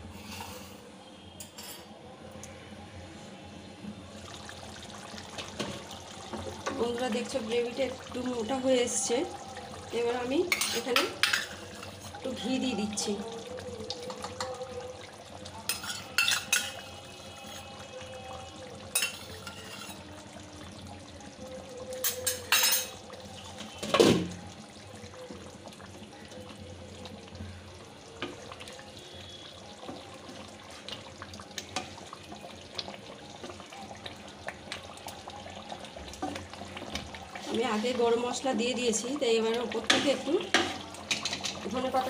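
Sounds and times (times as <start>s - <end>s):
curry bubbling and sizzling: 2.2s - 42.0s
metal spatula scraping a pan: 10.5s - 12.2s, 15.7s - 17.8s, 19.0s - 20.0s.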